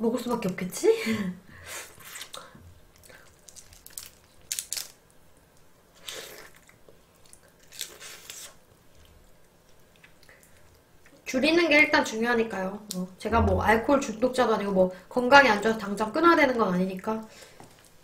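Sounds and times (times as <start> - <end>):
soft chewing: 5.4 - 11.2
sucking and biting noises: 6.0 - 8.7.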